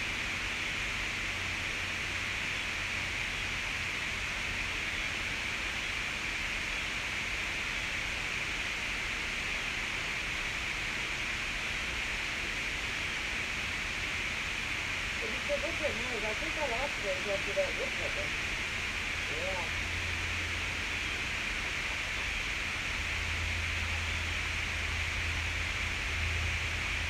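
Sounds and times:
steady hiss: 0:00.0 - 0:27.0
low hum: 0:09.7 - 0:27.0.

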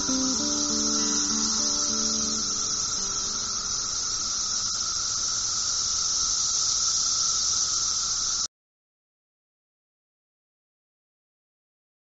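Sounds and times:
steady high hiss: 0:00.0 - 0:08.5.

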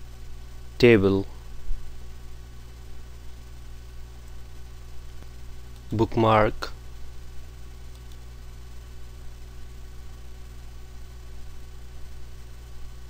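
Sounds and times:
electrical mains hum: 0:00.0 - 0:13.0
faint click: 0:07.9 - 0:08.2.

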